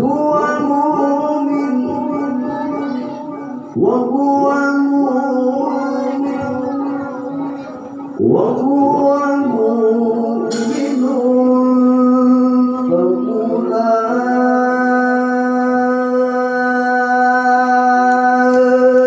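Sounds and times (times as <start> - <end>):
man reciting melodically: 0.0 - 19.0.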